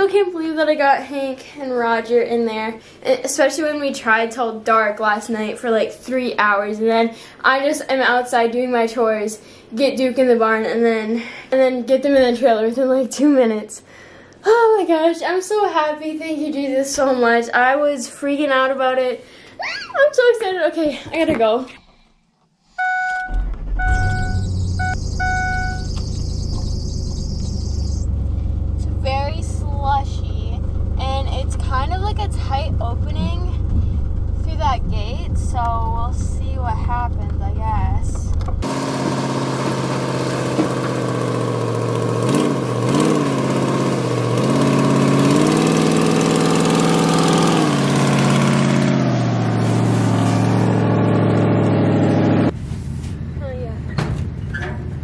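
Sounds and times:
dashboard warning chime beeping: 22.8s - 27.8s
truck engine starting and idling: 22.8s - 55.0s.

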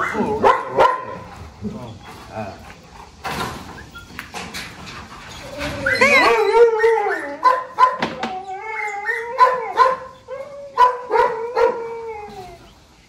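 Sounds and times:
dogs yelping: 0.0s - 1.2s, 5.3s - 12.8s
dogs whining: 5.2s - 12.9s.

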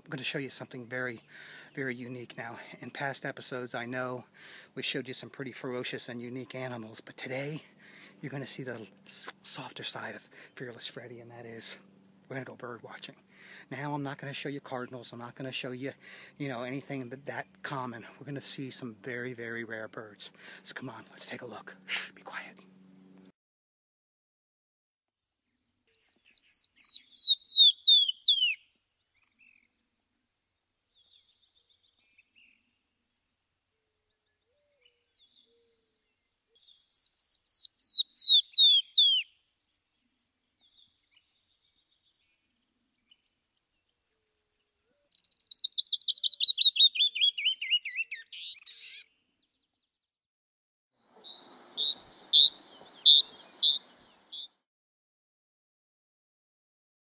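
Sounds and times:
short repeated bird chirps: 25.9s - 29.7s, 34.5s - 43.9s, 44.8s - 49.8s, 51.0s - 54.6s
songbird singing trills: 25.9s - 49.9s, 51.0s - 54.6s.

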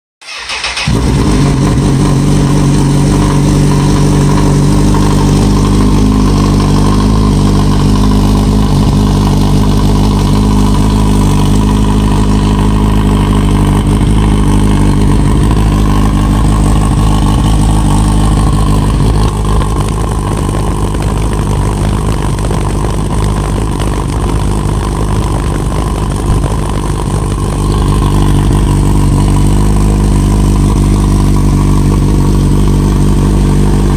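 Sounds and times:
motorcycle engine idling: 0.2s - 33.9s.

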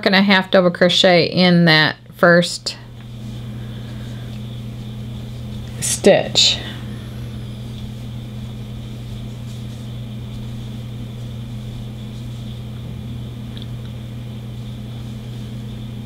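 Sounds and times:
electrical hum: 0.0s - 16.0s
faint high whine: 2.2s - 16.0s.

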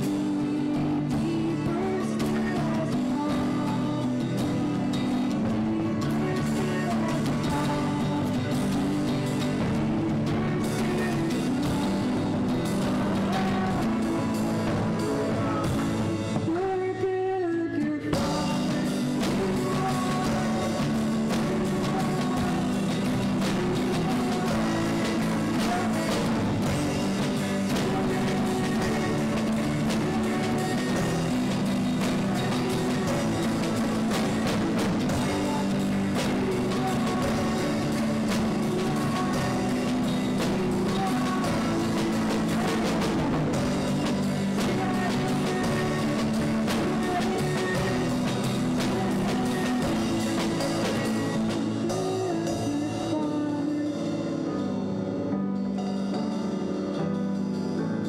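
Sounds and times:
drum kit: 0.0s - 58.0s
guitar: 0.0s - 58.0s
person singing: 0.0s - 58.0s
grand piano: 18.2s - 58.0s.

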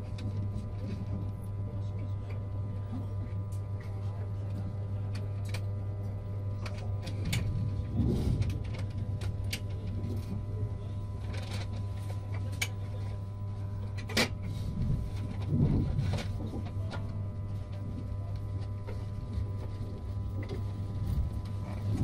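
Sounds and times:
train carriage low hum: 0.0s - 22.0s.

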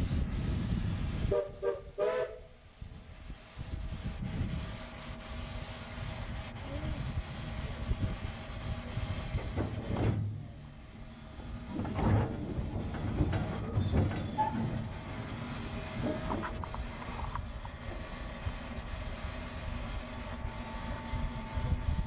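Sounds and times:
steam train rumbling: 0.0s - 22.0s
train clanks and knocks: 8.1s - 22.0s.

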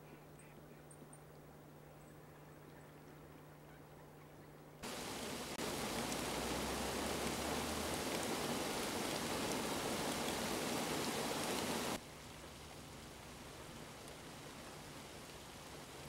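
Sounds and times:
rain falling: 4.8s - 16.0s.

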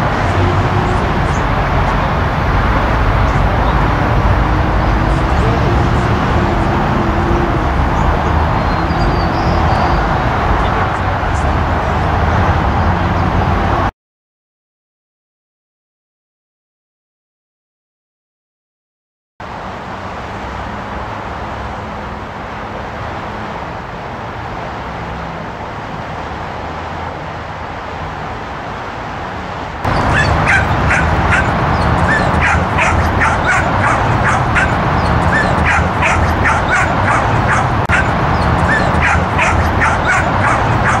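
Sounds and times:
steady background noise: 0.0s - 13.9s, 19.4s - 41.0s
dog yipping and barking: 29.9s - 41.0s.

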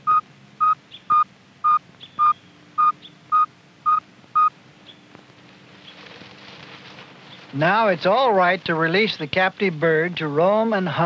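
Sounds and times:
telemetry receiver beeping: 0.0s - 4.5s.

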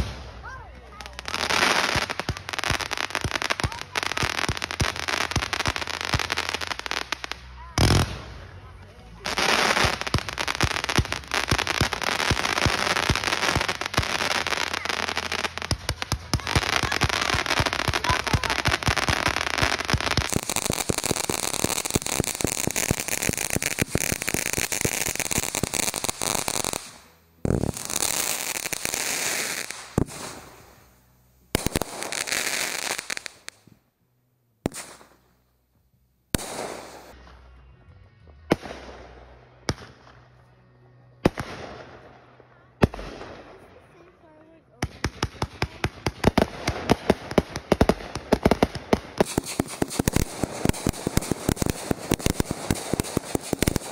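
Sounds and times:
crackling firework stars: 0.0s - 34.0s, 34.6s - 44.2s, 44.8s - 53.9s
firework launch pops: 34.7s - 35.2s.

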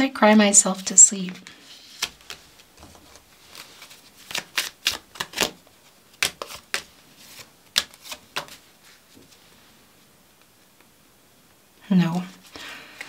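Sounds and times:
paper cards slapping on table: 1.3s - 8.6s.

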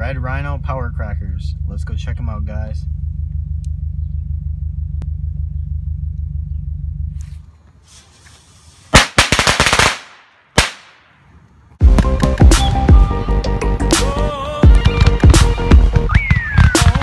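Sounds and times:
low hum inside a car: 0.0s - 7.8s
firecrackers banging: 8.9s - 11.1s, 14.7s - 17.0s.

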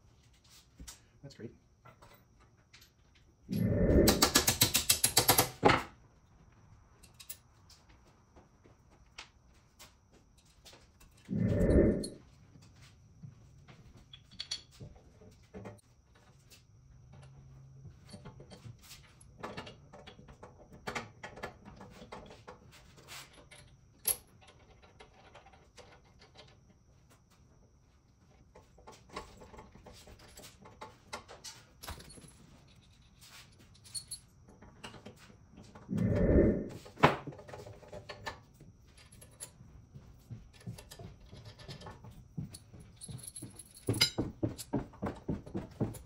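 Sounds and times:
metallic clinks of tools and bolts: 7.0s - 7.4s, 14.1s - 14.8s, 31.8s - 34.3s, 40.6s - 44.7s.

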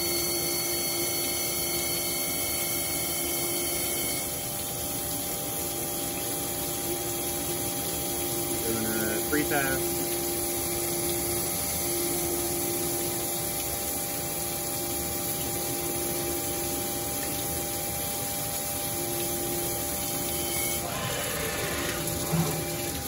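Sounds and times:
grinding wheel and coolant hiss: 0.0s - 23.0s
machine hum: 18.2s - 23.0s.

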